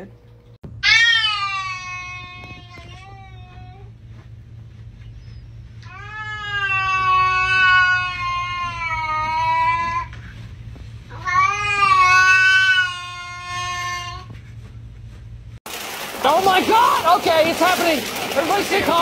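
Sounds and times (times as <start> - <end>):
cat yowling: 0.8 - 3.6, 5.9 - 10.0, 11.2 - 14.3.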